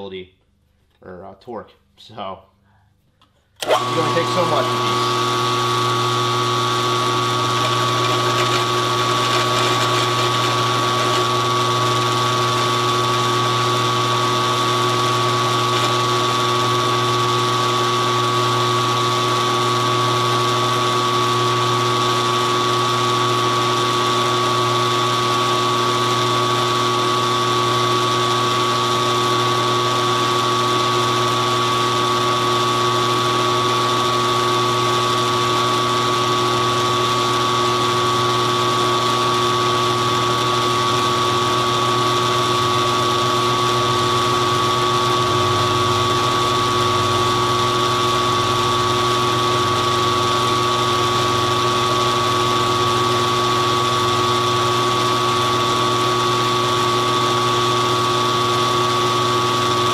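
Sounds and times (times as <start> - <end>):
cutter whine: 3.6 - 59.9
milling machine motor hum: 3.6 - 59.9.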